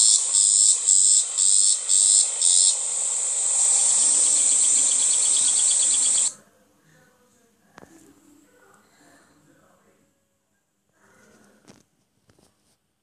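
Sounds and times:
lower insect trill: 0:00.0 - 0:06.3
insects buzzing high-pitched: 0:00.0 - 0:06.4.

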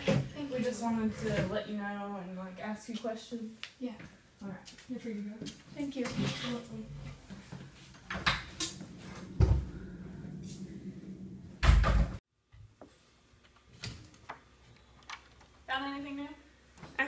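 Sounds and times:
footsteps: 0:04.0 - 0:11.5
chair pushed in at table: 0:06.0 - 0:12.2
door shutting thumps: 0:11.6 - 0:12.2.

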